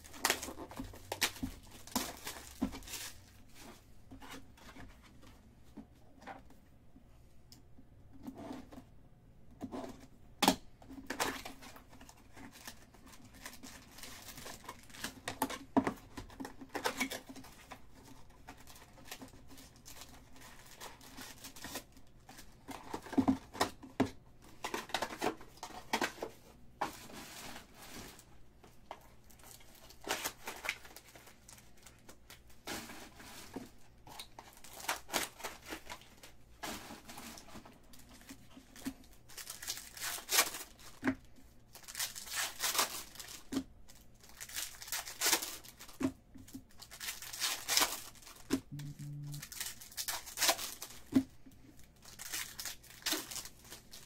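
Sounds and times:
card pack wrappers crinkling: 0:00.0 - 0:03.5, 0:11.1 - 0:23.8, 0:28.9 - 0:54.0.

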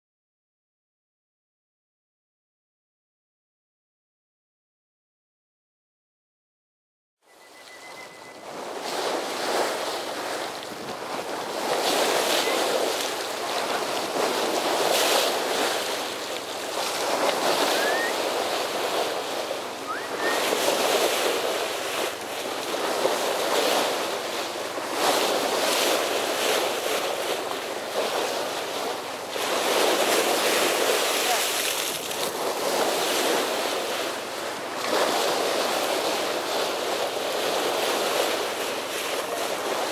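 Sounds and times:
wind buffeting microphone: 0:08.4 - 0:31.1
bow wave rushing and splashing: 0:08.5 - 0:39.9.

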